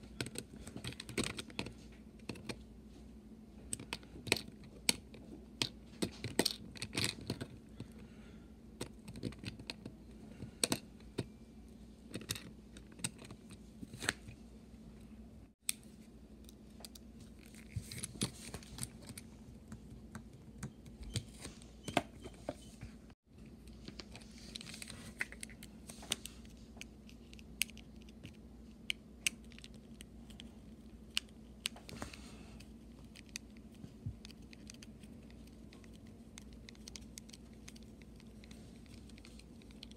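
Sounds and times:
small plastic parts rattling: 3.8 - 8.0.

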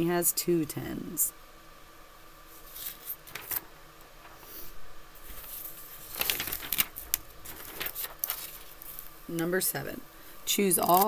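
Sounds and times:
paper rustling and crinkling: 2.5 - 9.6, 10.8 - 11.0.

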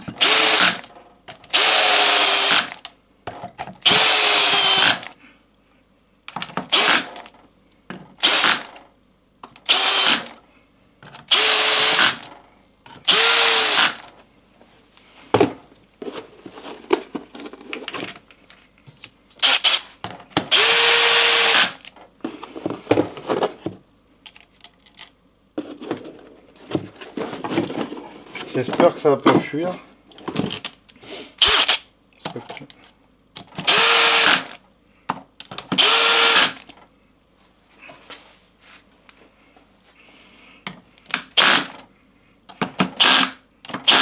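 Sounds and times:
cordless drill driving bolts: 0.1 - 0.9, 1.5 - 2.8, 3.8 - 5.1, 6.7 - 7.3, 8.2 - 8.8, 9.6 - 10.4, 11.3 - 12.3, 13.0 - 14.1, 19.4 - 19.8, 20.5 - 21.9, 31.4 - 31.8, 33.6 - 34.6, 35.8 - 36.7, 41.2 - 41.8, 43.0 - 44.0.

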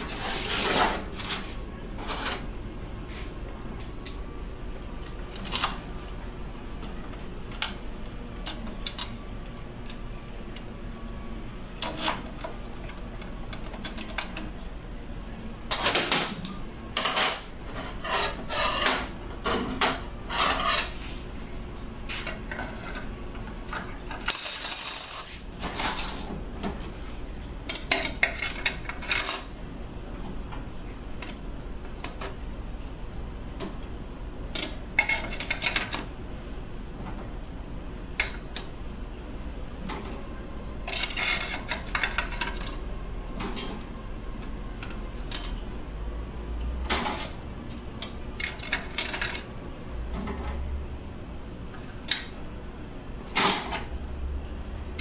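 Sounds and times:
metal parts clinking on steel bench: 24.2 - 25.3.

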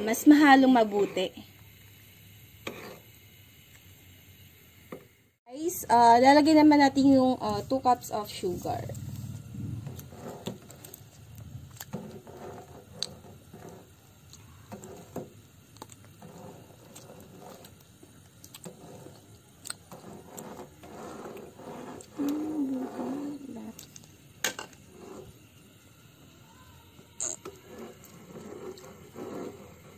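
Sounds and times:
ladle scraping metal pot: 2.6 - 3.0, 11.9 - 14.0, 18.6 - 23.6
wavering low hum: 7.4 - 10.3.

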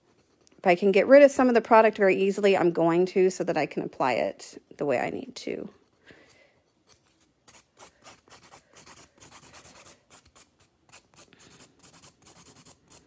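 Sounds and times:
nail file scraping fingernail: 6.8 - 13.0.

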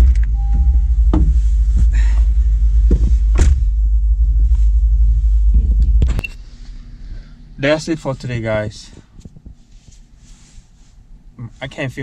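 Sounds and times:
clicks and knocks of seat movement: 0.0 - 3.6, 8.9 - 10.1
low car cabin rumble: 0.0 - 12.0
short beep: 0.3 - 1.1.

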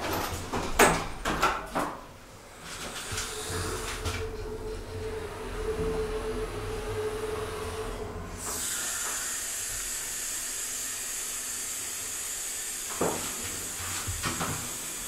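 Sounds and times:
low hum: 3.1 - 8.6.

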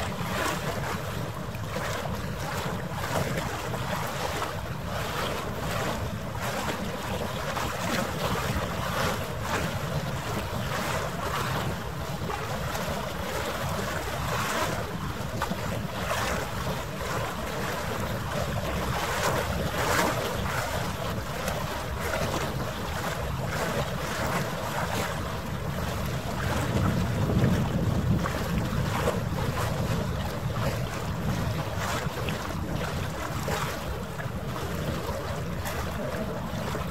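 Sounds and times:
waves splashing: 0.0 - 36.9
wind buffeting microphone: 0.0 - 36.9.

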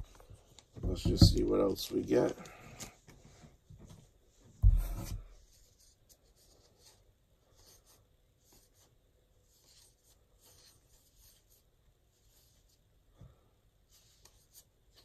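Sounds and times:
thump: 4.6 - 5.2.

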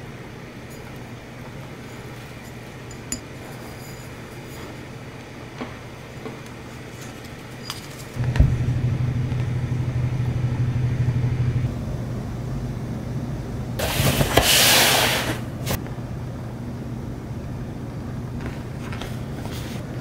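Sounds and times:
thump: 8.2 - 9.6
low rumble: 8.2 - 12.2.

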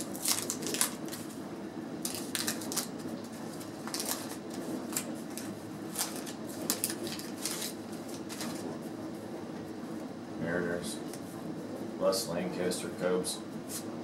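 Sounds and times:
wax paper wrapper crinkling and tearing: 0.0 - 1.4, 2.0 - 8.8.

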